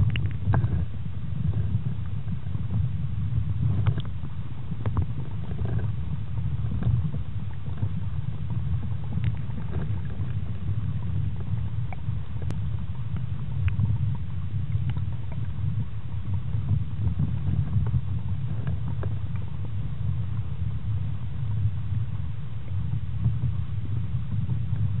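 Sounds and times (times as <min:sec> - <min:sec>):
faint clicks and ticks: 0:00.0 - 0:02.8, 0:03.6 - 0:20.5
underwater rumble: 0:00.0 - 0:25.0.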